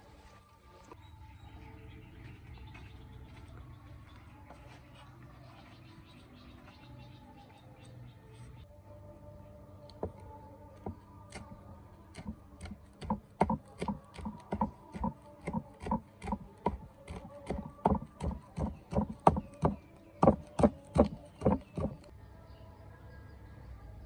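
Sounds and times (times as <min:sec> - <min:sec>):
cleaver chopping on wooden block: 0:12.1 - 0:22.1.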